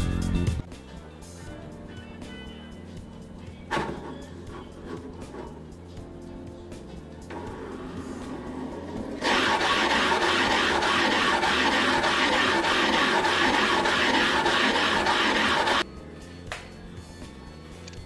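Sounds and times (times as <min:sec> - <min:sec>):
linear motor running: 0:07.3 - 0:15.8.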